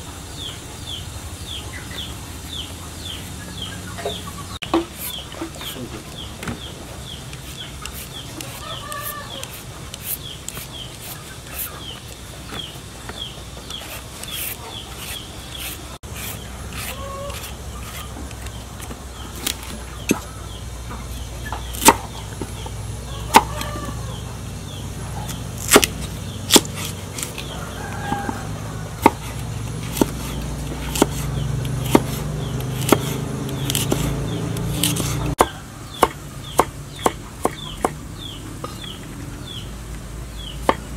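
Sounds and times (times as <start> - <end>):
chickens clucking: 1.6 - 16.0, 16.8 - 18.6, 19.2 - 24.4
cleaver striking chopping board: 23.3 - 23.6, 25.6 - 25.9, 29.0 - 29.3, 29.9 - 30.2, 30.8 - 31.2, 31.8 - 38.0.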